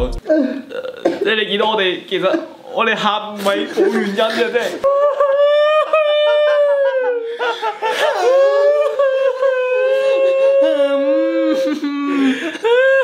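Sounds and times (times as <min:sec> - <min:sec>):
men wailing: 0:04.8 - 0:13.0.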